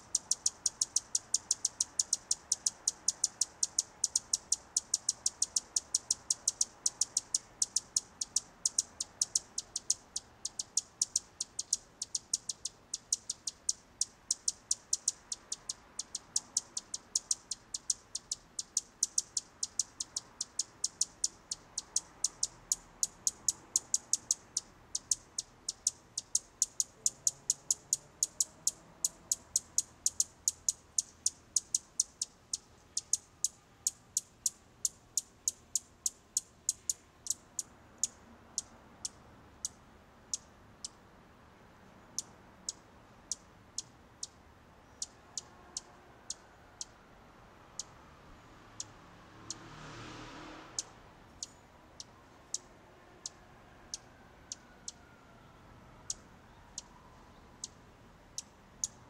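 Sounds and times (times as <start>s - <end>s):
high-pitched chirps: 0.0s - 40.5s.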